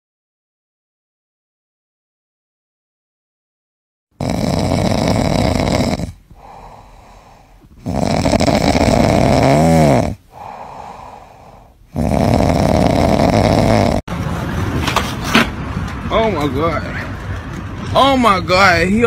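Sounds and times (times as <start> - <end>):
cat snoring: 4.2 - 14.1.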